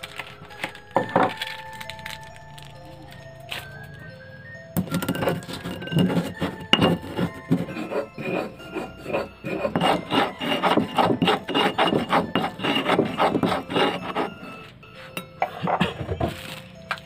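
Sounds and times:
stone pestle grinding in mortar: 4.8 - 16.6.

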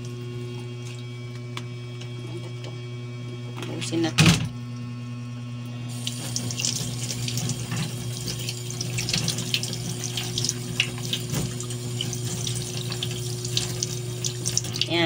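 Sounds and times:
tap water splashing into sink: 6.0 - 14.9.

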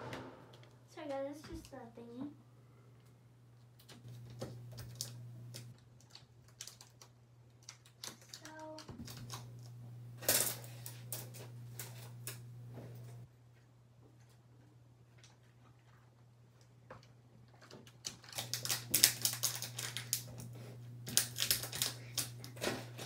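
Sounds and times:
small objects clicking and tapping: 16.9 - 23.0.

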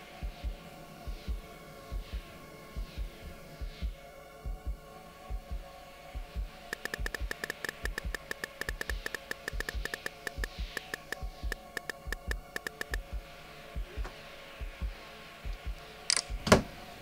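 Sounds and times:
steady hum: 0.0 - 17.0
smartphone keyboard taps: 6.8 - 13.1.

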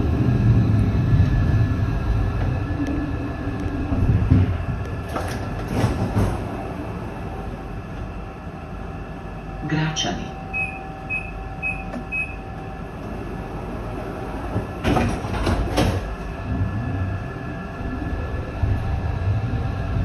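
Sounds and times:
low traction hum: 0.0 - 20.0
doors sliding shut: 4.0 - 7.4, 11.7 - 16.8
door warning beeps: 10.5 - 12.4.

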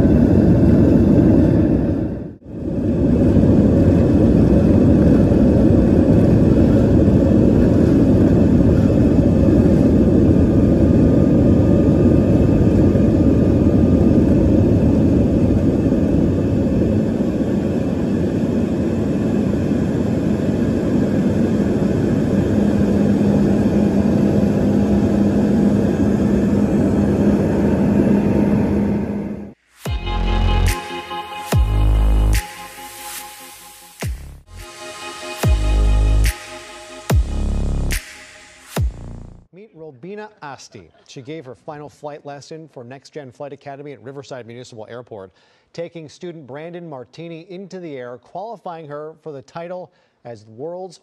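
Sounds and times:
jet engines rumbling: 0.0 - 39.6.

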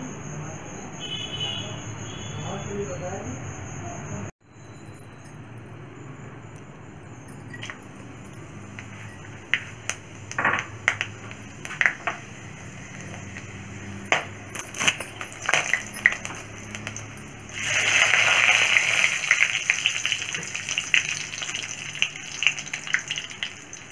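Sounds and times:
spices and spatula clinking on pan: 7.3 - 23.9
hot oil sizzling: 8.6 - 23.9.

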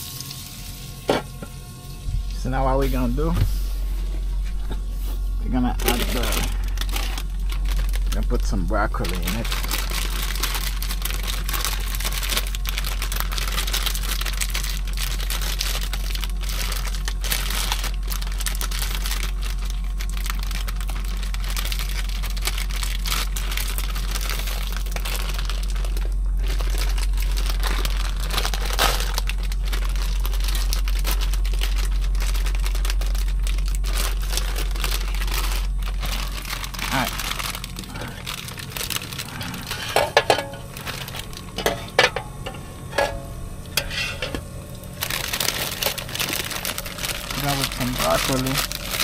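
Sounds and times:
vegetables sizzling in a hot pan: 0.0 - 1.2
low hum: 0.0 - 49.0.

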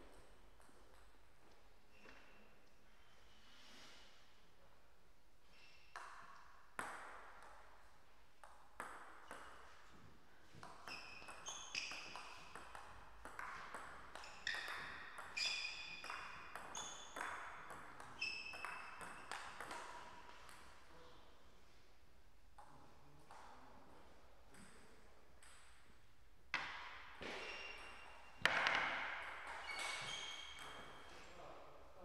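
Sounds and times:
table tennis ball hit and bouncing: 0.0 - 1.2, 5.9 - 7.8, 8.4 - 20.9, 25.4 - 31.3.

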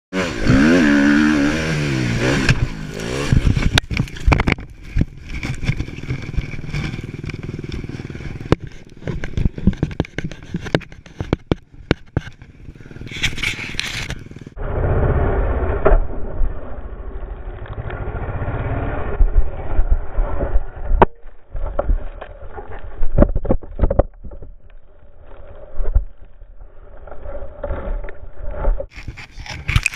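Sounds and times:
dirt bike engine revving: 0.2 - 4.3, 5.3 - 9.6
bike and rider crashing: 1.1 - 24.6.

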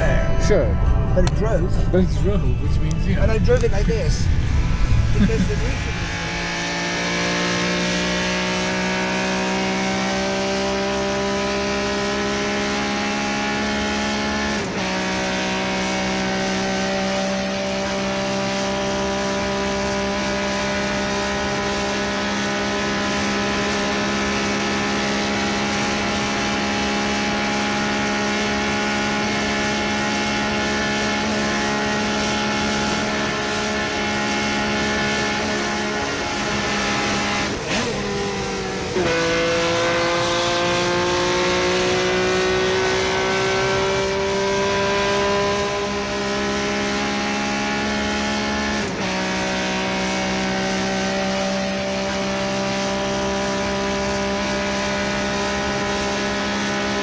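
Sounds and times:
wind noise: 0.0 - 7.1
car engine running: 0.0 - 57.0
road noise: 0.0 - 57.0.

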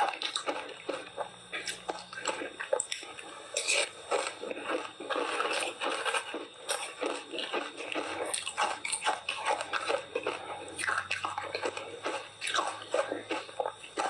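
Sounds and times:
person crunching ice: 3.6 - 14.0.

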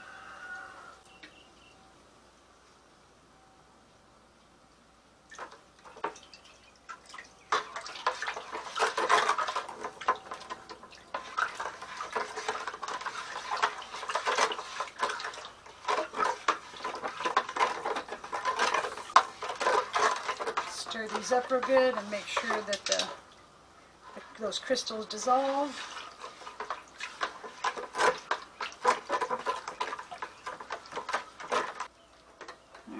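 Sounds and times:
water swishing in bucket: 5.3 - 32.7
stirrer scraping plastic bucket: 7.5 - 23.2, 24.0 - 32.8.

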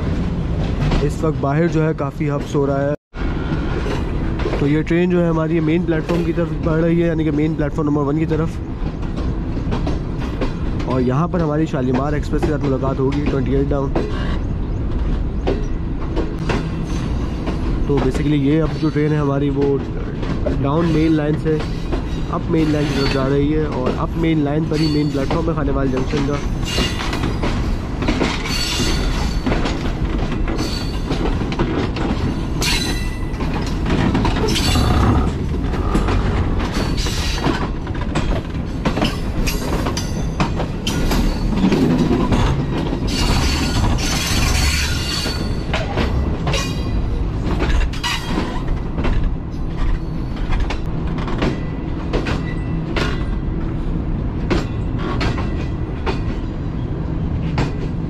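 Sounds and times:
train wheels rumbling on rails: 0.0 - 58.0
wheels clacking over rail joints: 3.6 - 56.8.

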